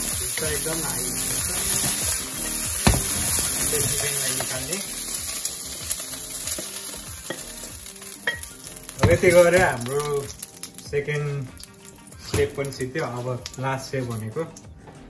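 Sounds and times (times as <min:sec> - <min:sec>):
chicken sizzling in oil: 0:00.0 - 0:14.5
pan knocking: 0:01.8 - 0:04.6, 0:08.2 - 0:09.9.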